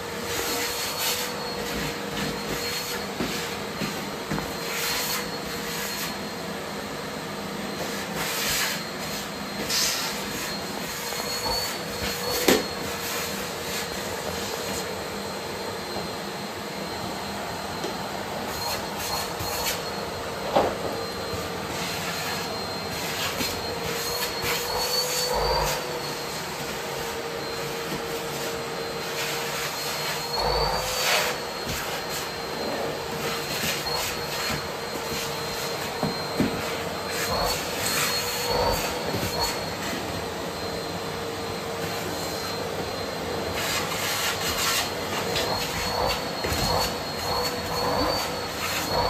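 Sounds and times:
vacuum cleaner whining: 0.0s - 49.0s.

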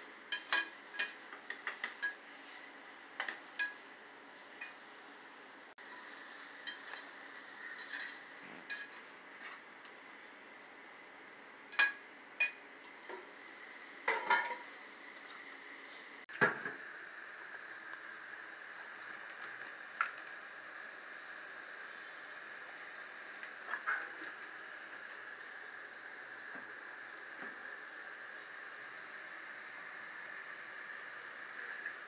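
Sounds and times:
faint sizzle: 0.0s - 32.0s
utensils scraping against a pot: 0.3s - 2.6s, 5.9s - 7.1s, 7.7s - 9.6s.

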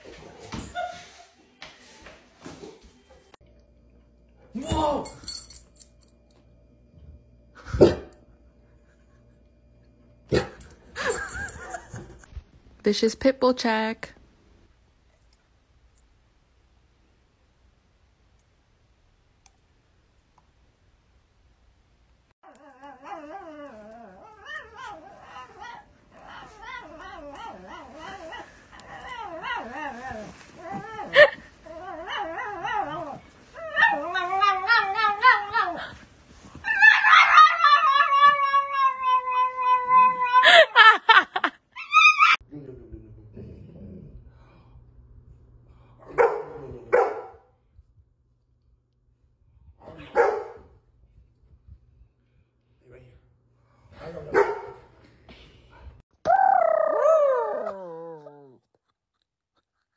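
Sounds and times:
dog whine-howling: 36.6s - 40.4s, 41.8s - 42.4s, 56.2s - 58.6s
dog barking deeply: 46.1s - 47.4s, 50.0s - 50.7s, 54.2s - 54.8s.

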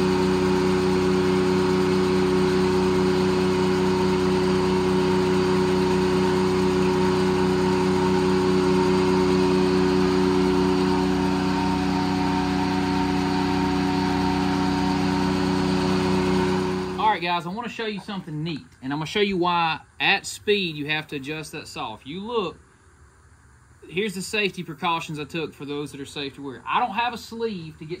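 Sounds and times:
circular saw spinning drone: 0.0s - 17.2s.

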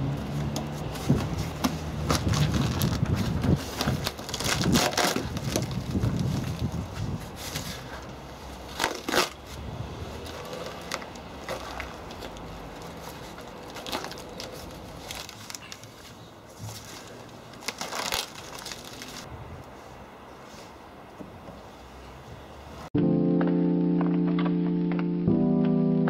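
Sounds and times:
cardboard and tape ripping: 0.7s - 8.0s, 8.7s - 9.6s, 10.2s - 16.0s, 16.7s - 19.3s.

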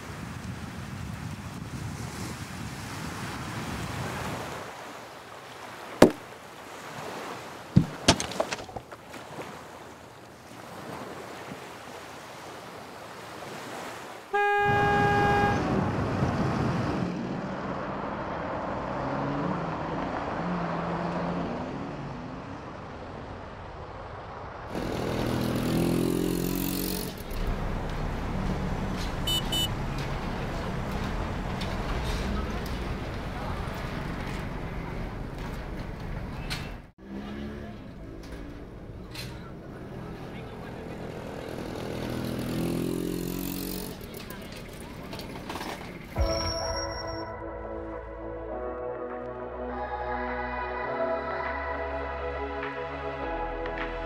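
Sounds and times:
street traffic noise: 5.8s - 9.0s, 13.8s - 47.2s
vehicle horn toot: 14.3s - 16.0s, 29.0s - 30.7s.

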